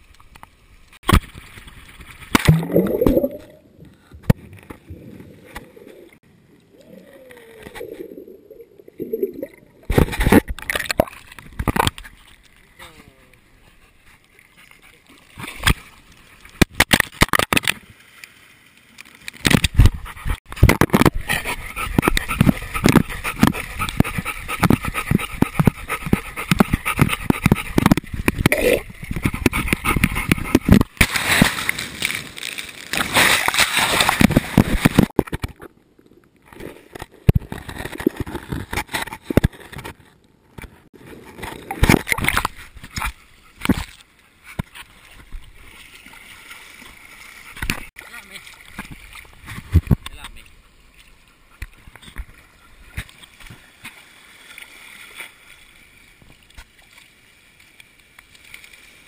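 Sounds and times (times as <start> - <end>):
sea water sloshing and splashing: 14.1 - 35.3, 44.7 - 59.0.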